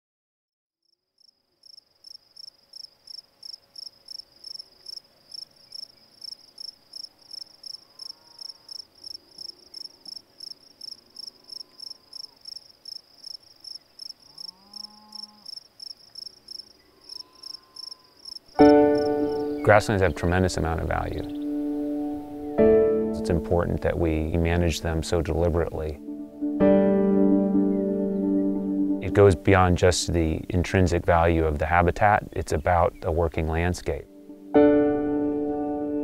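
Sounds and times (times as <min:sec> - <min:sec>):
cricket chirping: 0:00.8 - 0:20.1.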